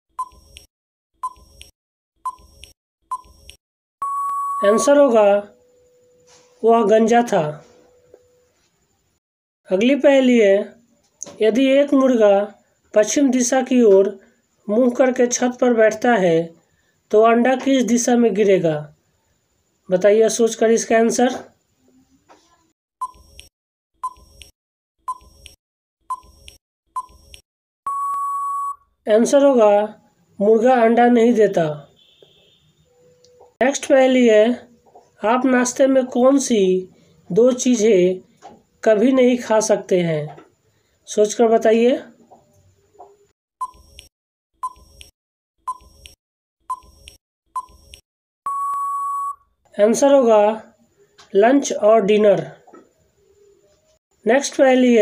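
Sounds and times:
short electronic beeps: 0.2 - 0.6, 1.2 - 6.3, 23.0 - 23.4, 24.0 - 24.5, 25.1 - 28.8, 43.6 - 45.1, 45.7 - 49.5
long steady beep: 4.0 - 6.3, 27.9 - 28.8, 48.5 - 49.4.

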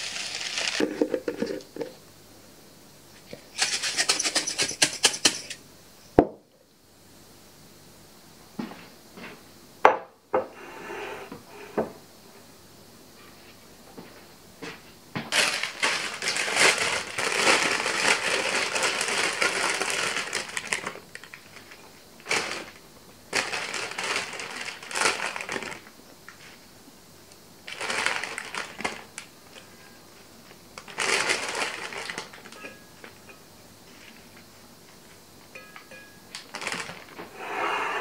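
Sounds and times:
salad leaves rustling and crackling: 0.0 - 1.2, 15.3 - 26.6, 27.6 - 29.6, 30.4 - 34.5, 36.4 - 37.3.

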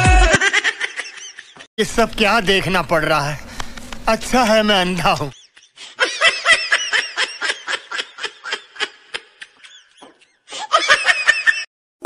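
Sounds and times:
woman laughing: 0.0 - 1.7, 5.3 - 11.7.

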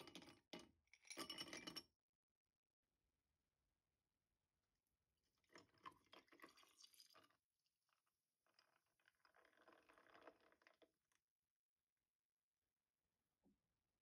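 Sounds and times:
milk pouring over ice: 5.4 - 7.4, 8.4 - 10.9.

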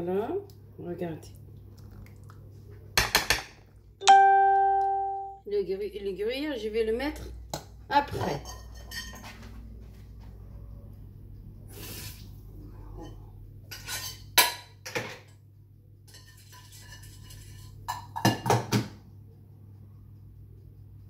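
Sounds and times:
steady low hum: 8.5 - 18.2, 19.0 - 21.0.

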